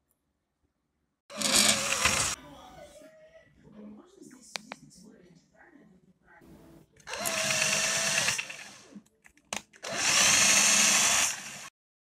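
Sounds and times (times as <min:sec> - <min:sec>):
power drill whining: 0:01.3 - 0:02.4, 0:07.1 - 0:08.9, 0:09.8 - 0:11.7.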